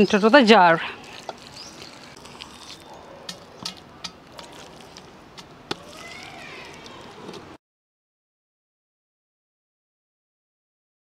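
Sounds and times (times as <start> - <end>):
metal spoon scraping metal bowl: 0.0 - 6.1.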